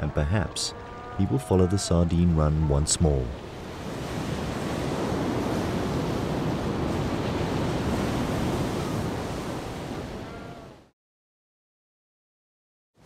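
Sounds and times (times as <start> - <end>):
ocean surf crashing on rocks: 1.9 - 10.8.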